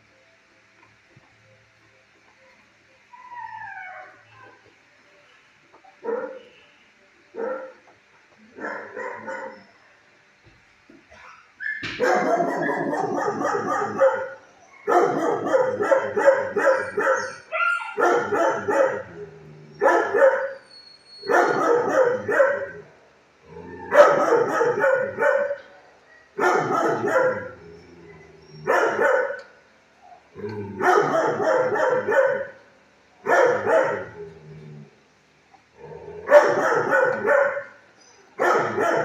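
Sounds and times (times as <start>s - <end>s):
dogs barking: 6.0s - 6.5s, 7.3s - 9.9s, 11.1s - 22.9s, 23.8s - 34.3s, 36.2s - 39.0s.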